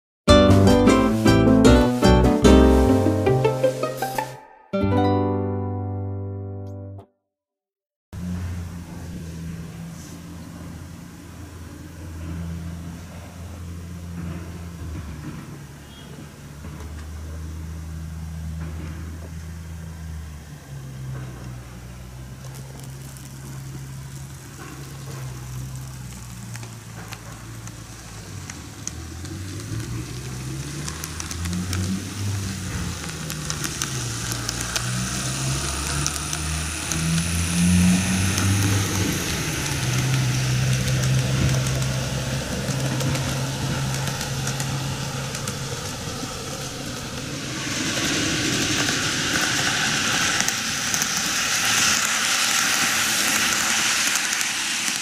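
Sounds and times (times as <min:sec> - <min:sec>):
wheels rattling on rail: 0:08.2 - 0:55.0
model train motor hum: 0:17.1 - 0:55.0.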